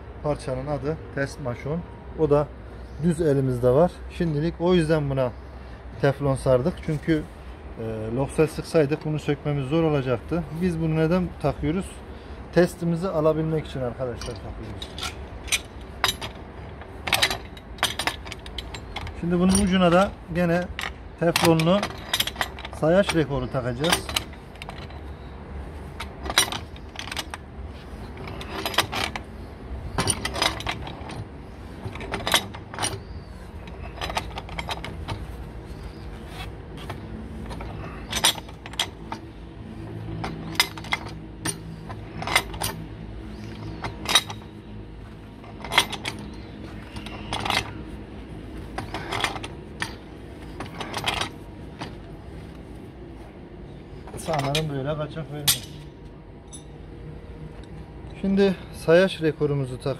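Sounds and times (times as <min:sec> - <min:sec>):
pipe wrench metallic clicks: 0:55.4 - 0:55.9.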